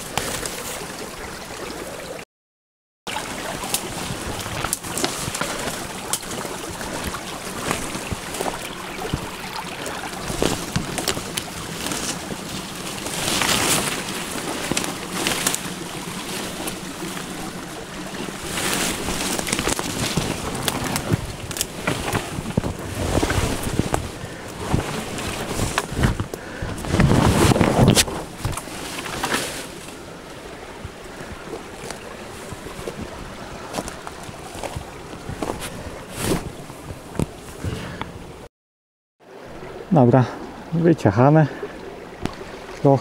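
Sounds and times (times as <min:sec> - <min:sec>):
leaves and branches rustling: 0:00.0 - 0:02.1, 0:03.1 - 0:38.5
twigs snapping: 0:03.4 - 0:30.0.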